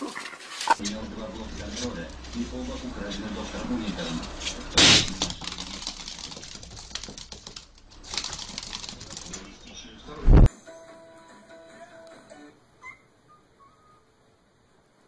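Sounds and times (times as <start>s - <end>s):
hamster scurrying: 0.4s - 10.5s
balloon popping: 4.8s - 7.4s.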